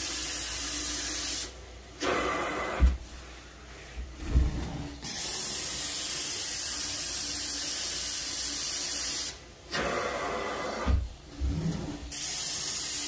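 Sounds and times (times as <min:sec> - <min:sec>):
carpet cleaner spray and suction hiss: 0:00.0 - 0:03.2, 0:05.0 - 0:11.1, 0:12.0 - 0:13.0.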